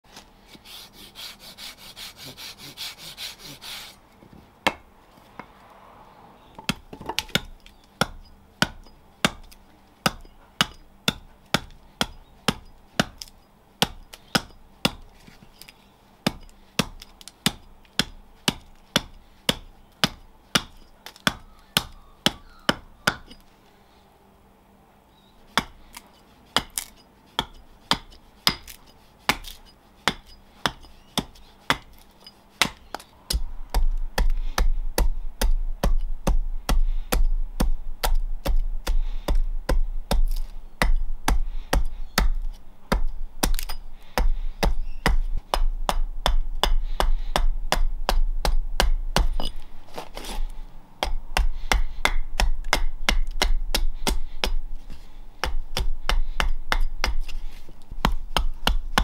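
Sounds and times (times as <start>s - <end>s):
hand saw cutting wood: 0.5s - 4.0s
axe chopping wood: 4.6s - 5.5s, 6.6s - 15.1s, 16.2s - 23.4s, 25.5s - 59.0s.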